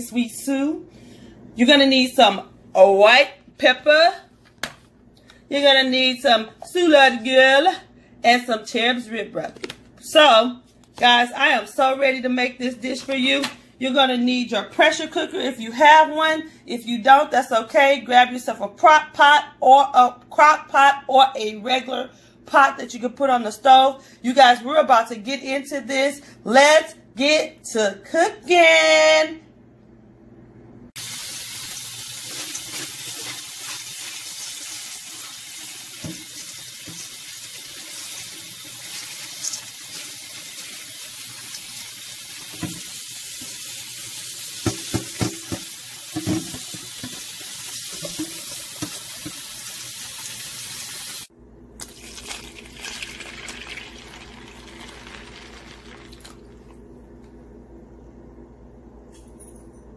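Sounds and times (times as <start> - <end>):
tap water running: 31.0 - 56.8.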